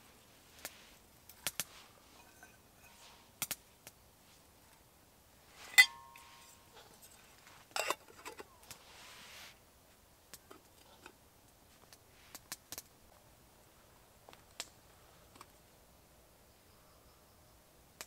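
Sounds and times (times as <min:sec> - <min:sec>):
metal mugs clinking: 0:02.1 - 0:03.1, 0:05.6 - 0:08.6.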